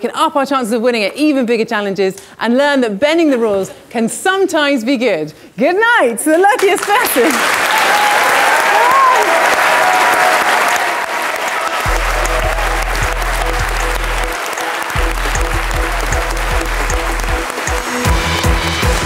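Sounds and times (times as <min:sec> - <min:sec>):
audience applauding: 0:06.8 - 0:19.0
music with deep bass line: 0:11.9 - 0:14.4, 0:15.0 - 0:19.0.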